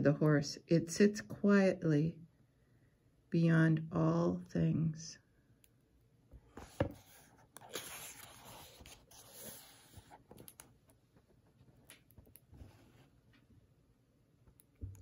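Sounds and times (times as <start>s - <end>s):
paper pages rustling: 6.5s - 10.6s.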